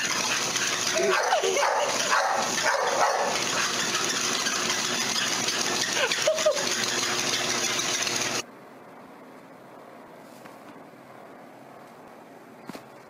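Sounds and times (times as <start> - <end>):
treadmill running: 0.0 - 8.4
dog walking on treadmill belt: 0.8 - 3.4
dog whining: 1.0 - 3.4.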